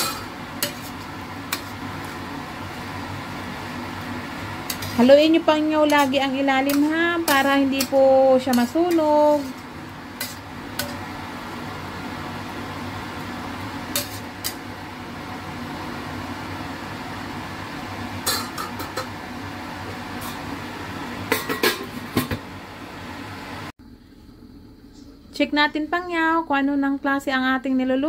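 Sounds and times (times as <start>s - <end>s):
metal lid clattering on wok: 0.0s - 1.8s, 13.9s - 14.6s, 18.2s - 19.1s, 21.3s - 22.4s
metal spatula scraping a wok: 0.0s - 2.7s, 4.5s - 11.2s, 13.8s - 14.6s.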